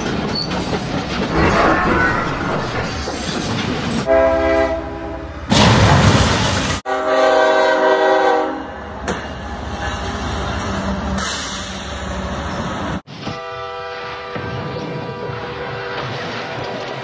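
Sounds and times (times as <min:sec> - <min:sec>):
rolling train rumble: 0:00.0 - 0:17.0
loud noisy crash: 0:01.3 - 0:04.1, 0:05.5 - 0:06.8
multi-tone train horn: 0:04.1 - 0:05.4, 0:06.9 - 0:08.9, 0:13.2 - 0:16.1.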